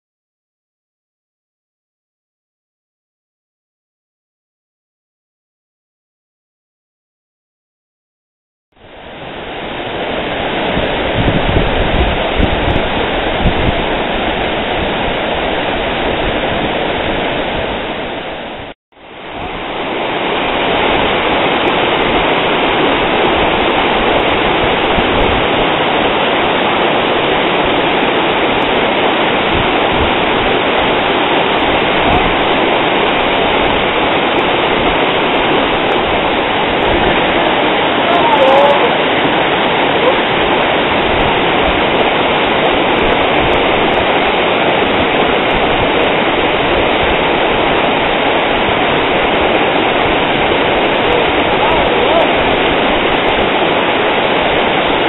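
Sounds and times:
waterfall rushing: 8.8s - 55.0s
human voice: 38.0s - 39.0s, 40.0s - 40.2s, 51.0s - 52.4s.

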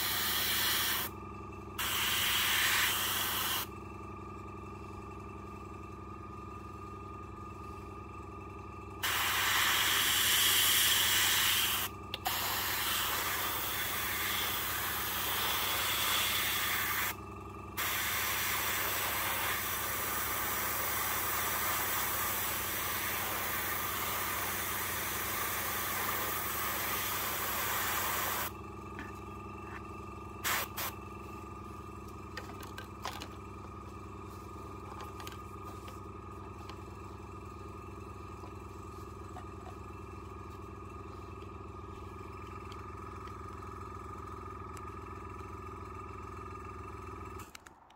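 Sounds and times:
airbrush hissing: 0.0s - 1.1s, 1.8s - 3.7s, 9.0s - 17.2s, 17.8s - 28.5s, 30.4s - 30.9s
steady low hum: 0.0s - 47.6s.

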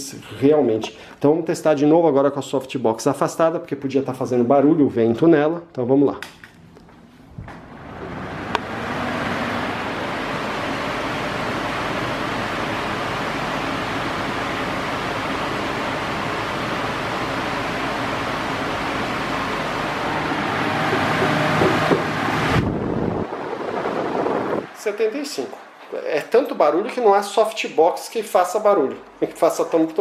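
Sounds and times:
fan rushing air: 6.2s - 30.0s.

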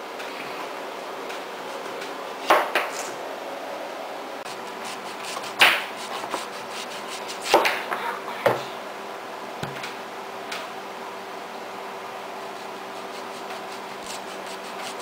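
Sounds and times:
knife knocking on cutting board: 9.6s - 9.9s.

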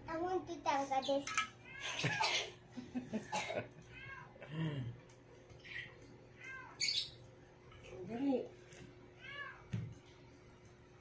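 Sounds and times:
cat meowing: 3.9s - 4.3s, 9.2s - 9.7s.

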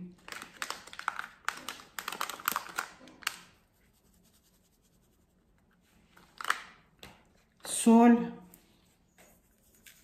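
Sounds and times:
paper packet crinkling: 0.1s - 3.6s, 6.1s - 6.8s
packet being tapped: 0.2s - 3.6s.

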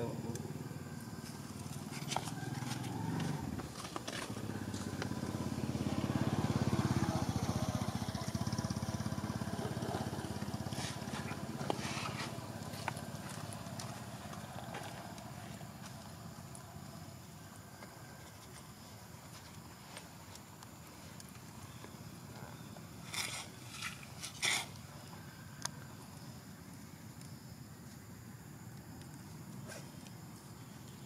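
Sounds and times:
passing vehicle engine rumble: 0.0s - 17.0s.

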